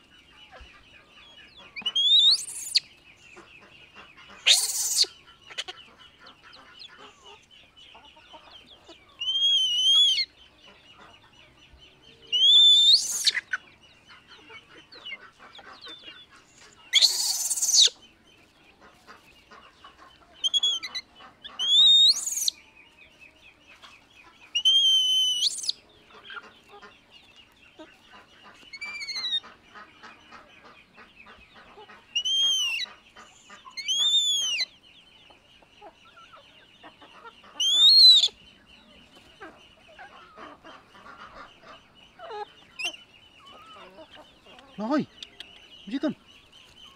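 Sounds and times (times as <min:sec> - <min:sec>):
baby monkey screeching: 0:04.4 - 0:05.7, 0:12.4 - 0:13.4, 0:16.9 - 0:17.9, 0:21.6 - 0:22.5, 0:24.6 - 0:25.7, 0:28.7 - 0:29.4, 0:32.2 - 0:32.9, 0:37.6 - 0:38.3.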